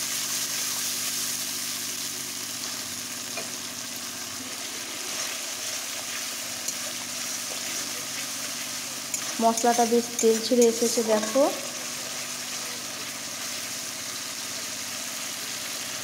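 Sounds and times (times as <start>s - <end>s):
spice paste sizzling in oil: 0.0s - 16.0s.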